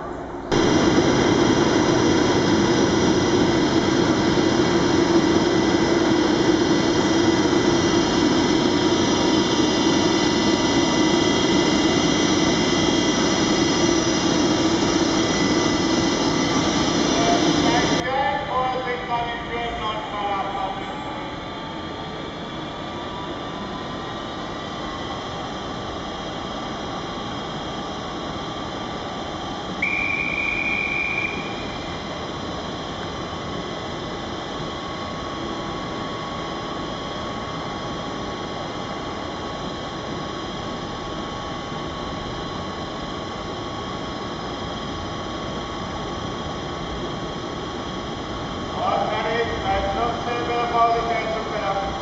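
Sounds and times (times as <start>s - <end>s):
station platform hum and rush: 0.0s - 52.0s
high steady whistle: 29.8s - 32.4s.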